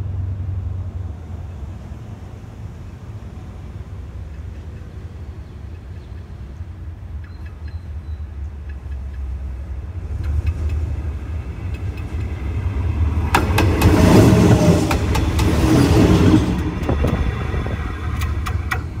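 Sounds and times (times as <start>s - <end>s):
locomotive engine rumble: 0.0s - 19.0s
wheel clicks on rails: 4.2s - 19.0s.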